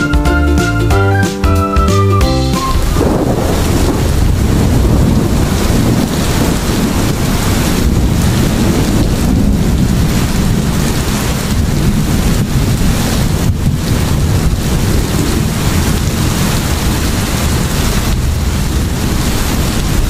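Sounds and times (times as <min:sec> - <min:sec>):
music: 0:00.0 - 0:03.4
wind buffeting microphone: 0:02.6 - 0:20.0.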